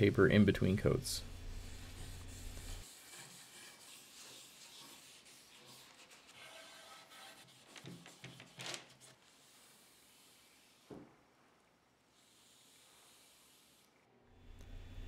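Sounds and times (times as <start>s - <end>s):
cloth pad rubbing wood: 1.2s - 8.4s.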